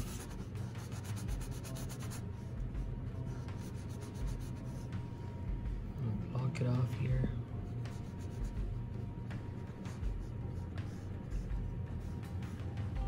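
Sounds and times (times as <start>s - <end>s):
paintbrush scrubbing on canvas: 0.0s - 2.3s, 3.2s - 4.9s, 7.8s - 8.8s.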